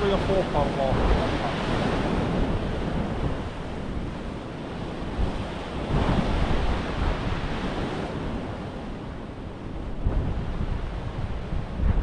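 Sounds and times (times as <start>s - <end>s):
waves washing against rocks: 0.0s - 8.9s
wind buffeting microphone: 0.0s - 12.0s.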